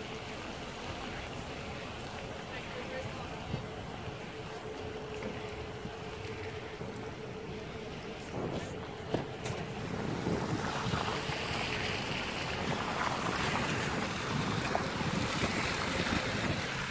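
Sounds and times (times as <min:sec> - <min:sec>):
faint steady hum: 0:00.0 - 0:16.9
wind buffeting microphone: 0:02.8 - 0:16.9
tyre noise on wet road: 0:08.2 - 0:16.9.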